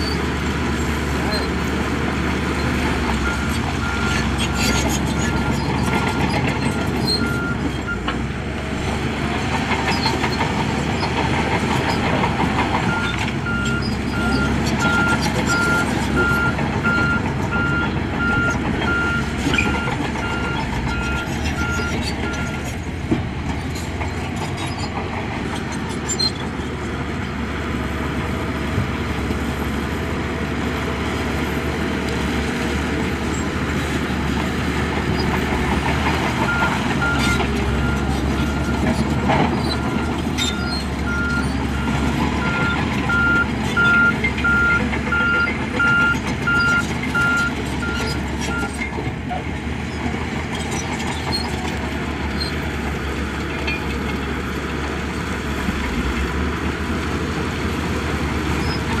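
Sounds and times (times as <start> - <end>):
diesel engines running: 0.0 - 59.0
reversing alarm beeping: 39.8 - 48.7.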